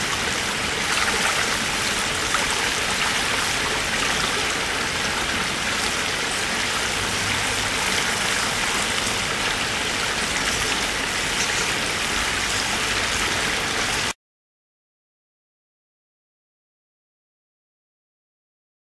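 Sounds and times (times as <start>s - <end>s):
river water rushing over gravel: 0.0s - 14.1s.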